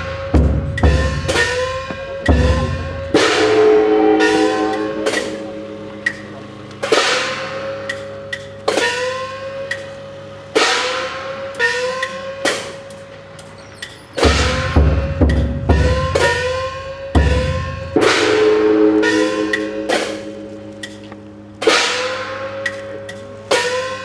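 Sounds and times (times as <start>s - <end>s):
heavy drum beats: 0.0s - 9.4s, 14.2s - 20.7s, 21.4s - 24.0s
gongs struck: 0.0s - 13.2s, 14.2s - 24.0s.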